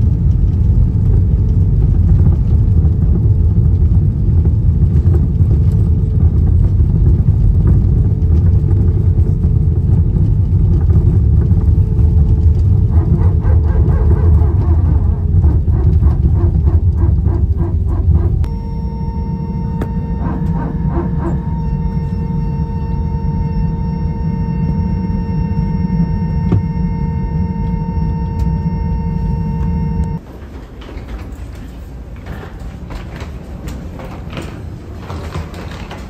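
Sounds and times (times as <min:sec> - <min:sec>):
vehicle interior rumble: 0:00.0 - 0:30.2.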